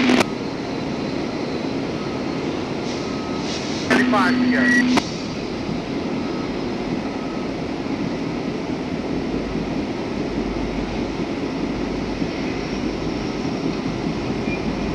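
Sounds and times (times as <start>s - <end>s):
freight train wheels rumbling: 0.0s - 14.9s.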